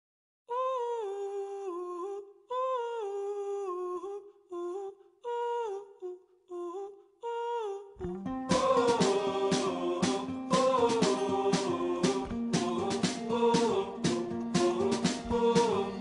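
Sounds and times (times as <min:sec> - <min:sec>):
person humming a melody: 0:00.5 - 0:09.8.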